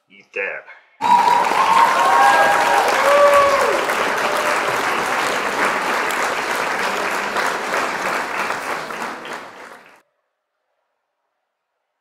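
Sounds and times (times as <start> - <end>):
crowd applause: 1.0 - 10.0.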